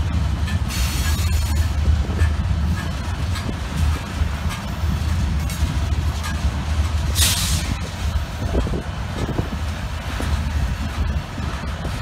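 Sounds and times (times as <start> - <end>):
train wheels rumbling on rail: 0.0 - 12.0
short hiss burst: 7.1 - 7.8.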